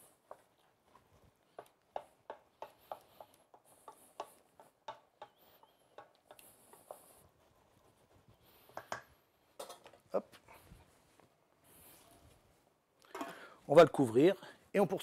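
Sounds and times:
wooden spatula knocking against pot: 1.6s - 6.4s.

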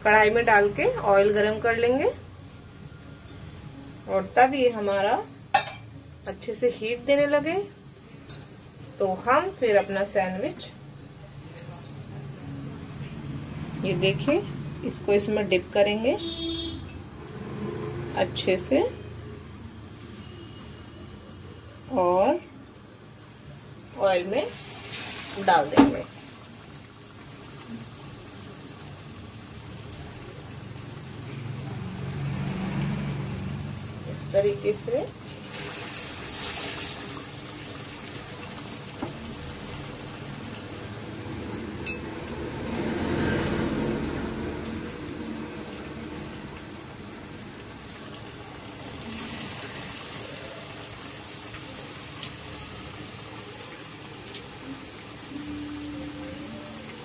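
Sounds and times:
oil sizzling while deep-frying: 12.8s - 57.0s.

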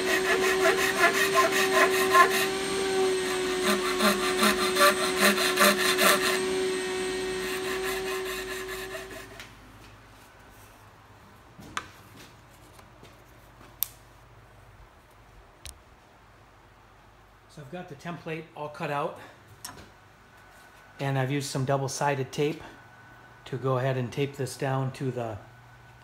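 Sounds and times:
metal file rasping on hardboard: 0.0s - 2.7s, 3.5s - 6.5s, 7.4s - 9.4s.

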